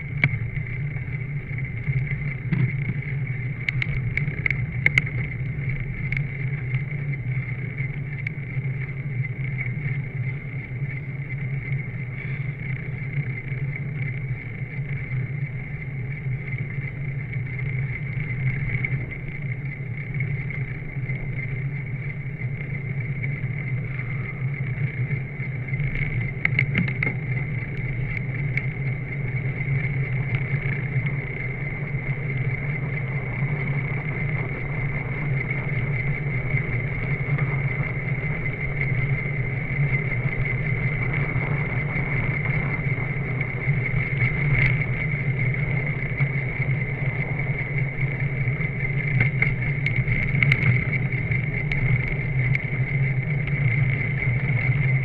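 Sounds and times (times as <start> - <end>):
wind and road noise: 0.0 - 55.0.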